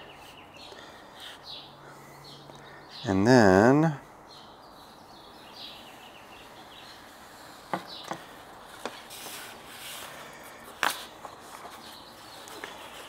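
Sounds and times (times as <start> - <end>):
soft rustle of vinyl skin: 8.3 - 13.0.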